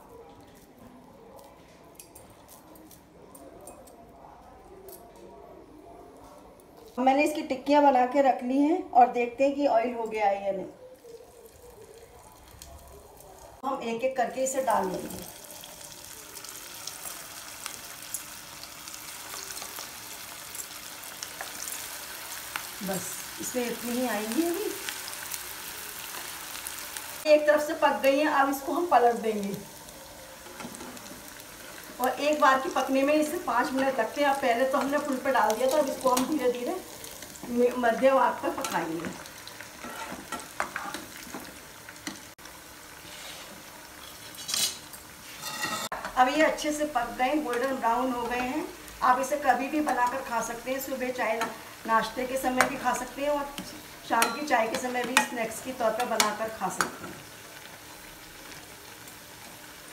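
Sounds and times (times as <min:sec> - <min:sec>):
oil sizzling with crackles: 0:10.9 - 0:59.9
loud hiss of frying: 0:42.7 - 0:44.0, 0:51.0 - 0:54.4.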